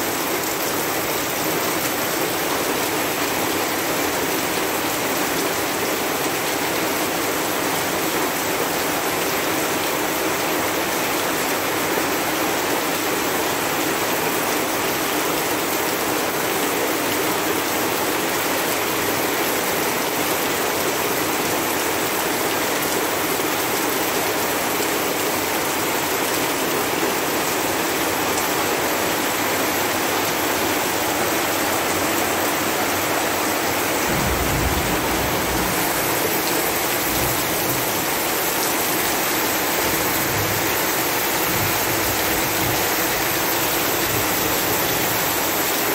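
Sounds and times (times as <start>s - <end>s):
heavy rain: 0.0s - 45.9s
low rumble: 34.0s - 37.6s.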